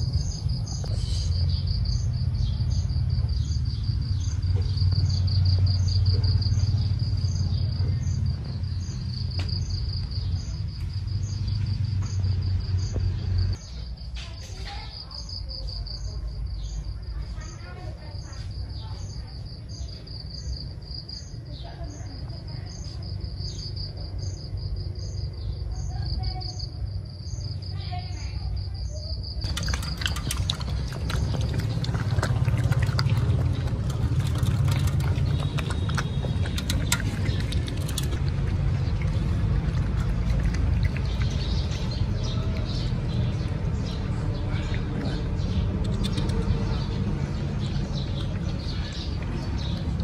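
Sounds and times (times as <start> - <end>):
crickets chirping: 0.0 - 50.0
low background rumble: 19.2 - 50.0
clicks against metal bowls: 29.4 - 42.8, 44.7 - 46.8
puppies lapping and chewing: 29.4 - 50.0.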